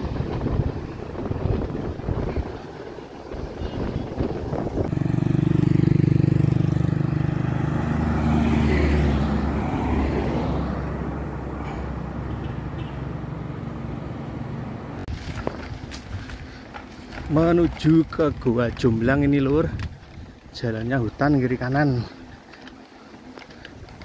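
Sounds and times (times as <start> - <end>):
vehicle engine passing by: 4.5 - 15.1.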